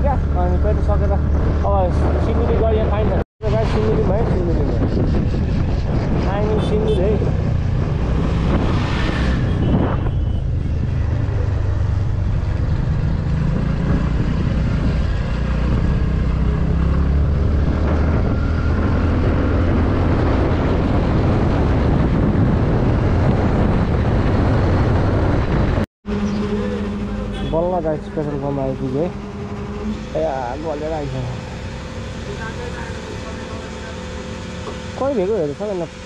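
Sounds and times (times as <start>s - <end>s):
wind on microphone: 1.2s - 26.6s
vehicle passing: 6.2s - 35.9s
scooter engine running: 26.0s - 36.0s.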